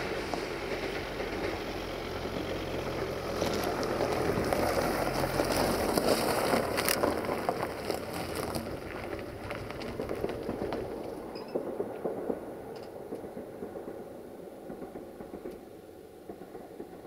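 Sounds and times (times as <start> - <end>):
diesel engine low hum: 0.0 - 17.0
wheels rumbling on rail: 0.0 - 17.0
sharp clicks and crackles: 3.4 - 13.5.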